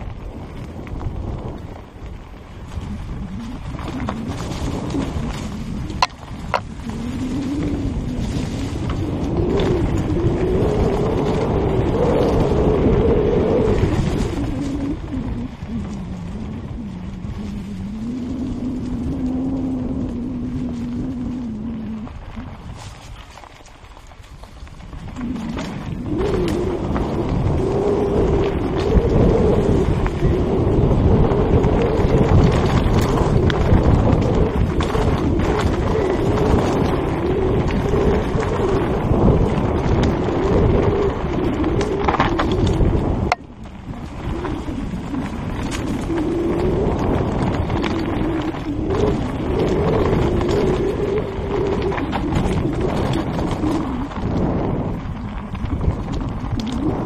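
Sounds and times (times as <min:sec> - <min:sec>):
bike rattling: 0:00.0 - 0:57.0
tyres on loose ground: 0:00.0 - 0:57.0
wind rumble on microphone: 0:00.0 - 0:57.0
wavering hum: 0:02.7 - 0:23.1.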